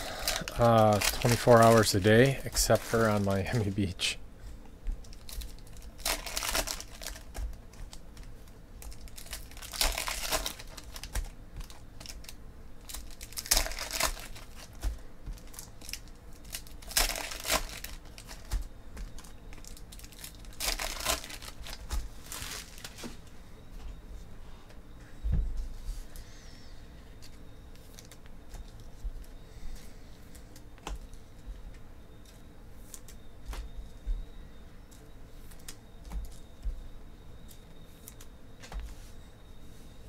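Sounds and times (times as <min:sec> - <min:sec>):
foil wrappers crinkling and tearing: 0:00.0 - 0:04.1, 0:05.0 - 0:23.2, 0:27.2 - 0:29.0
cards being handled: 0:00.2 - 0:03.9.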